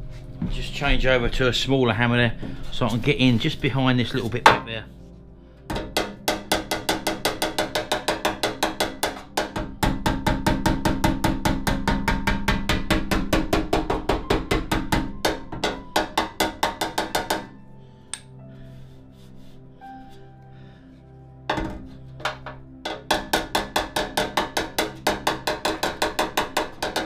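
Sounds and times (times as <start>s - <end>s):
hammer tapping on metal: 5.7s - 17.5s, 21.5s - 27.0s.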